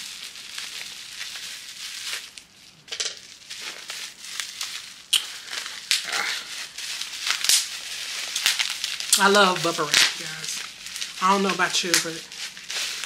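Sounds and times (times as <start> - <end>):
plastic packaging crinkling: 0.0 - 13.0.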